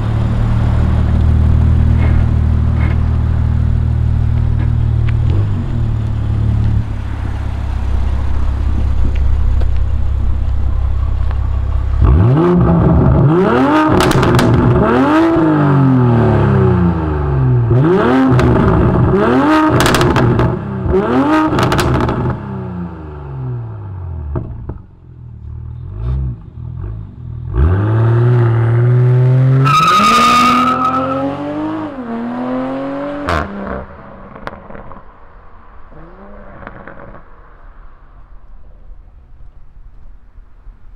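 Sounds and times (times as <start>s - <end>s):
car engine revving: 0.0s - 35.2s
exhaust cracks and pops: 0.8s - 6.8s, 8.3s - 13.3s, 13.9s - 14.8s, 21.5s - 22.4s.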